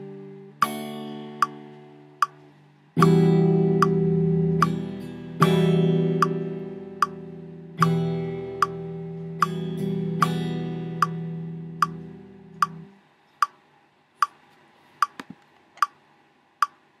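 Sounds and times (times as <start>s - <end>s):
metronome clicking: 0.0s - 13.6s, 14.2s - 14.4s, 15.0s - 16.0s, 16.6s - 16.8s
clean electric guitar chord: 3.0s - 12.9s.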